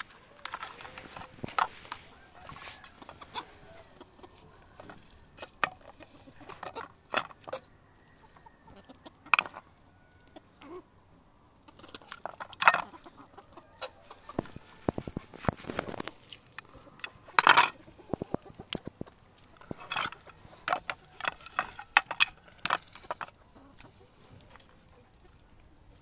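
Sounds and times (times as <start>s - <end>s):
chickens clucking: 0.0s - 26.0s.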